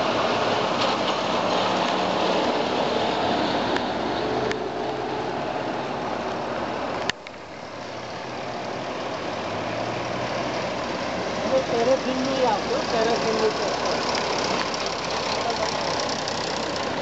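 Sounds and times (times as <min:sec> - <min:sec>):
car going by: 0:00.0 - 0:17.0
tractor engine driving past: 0:08.0 - 0:17.0.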